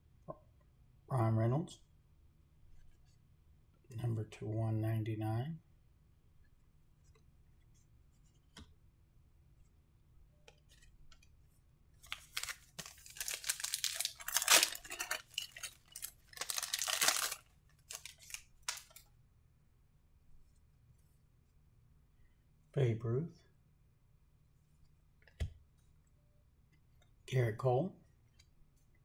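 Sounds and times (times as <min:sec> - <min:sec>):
wrapper tearing and crinkling: 0:12.1 - 0:19.0.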